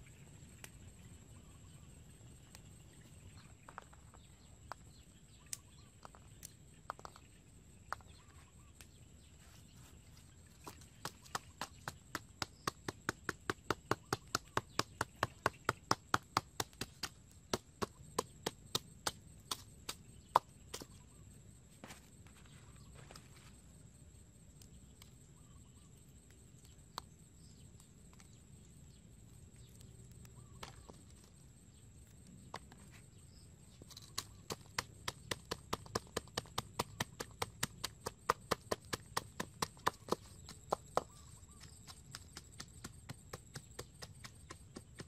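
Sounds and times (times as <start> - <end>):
pestle pounding in a mortar: 10.7 - 20.9, 34.1 - 45.0.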